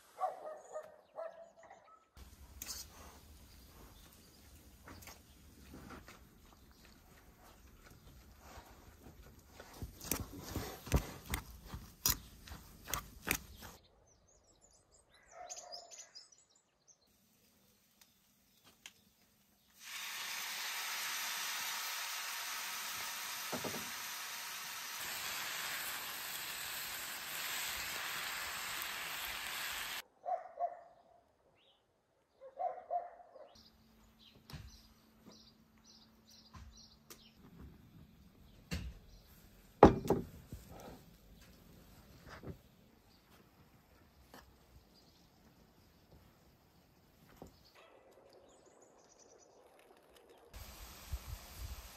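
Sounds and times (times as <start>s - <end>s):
bird chirps: 13.4s - 17.1s
food sizzling in a frying pan: 19.8s - 30.0s.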